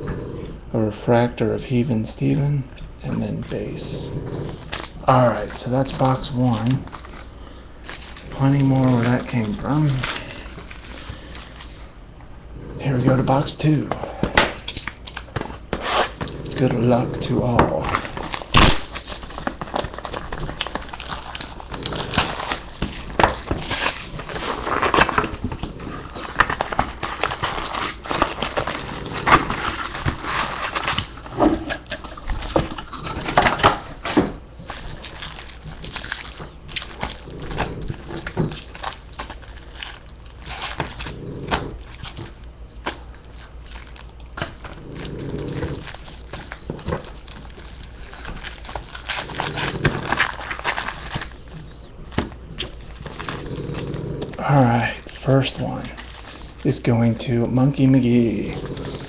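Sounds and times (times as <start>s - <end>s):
foil card packs crinkling: 3.1s - 12.0s, 12.8s - 59.0s.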